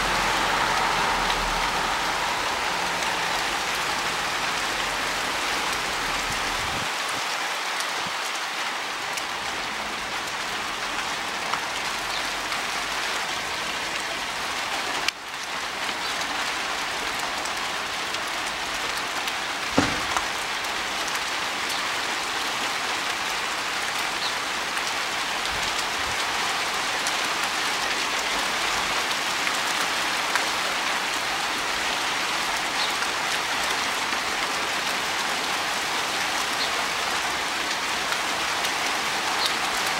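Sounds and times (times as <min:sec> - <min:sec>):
hail and rain falling: 0:00.0 - 0:39.9
sharp knock: 0:19.8 - 0:20.3.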